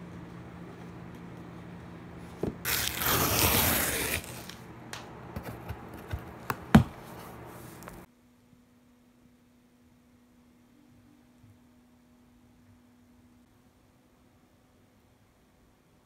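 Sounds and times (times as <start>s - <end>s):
cardboard tearing: 2.6s - 4.6s
cardboard knocks and rustles: 5.4s - 7.0s.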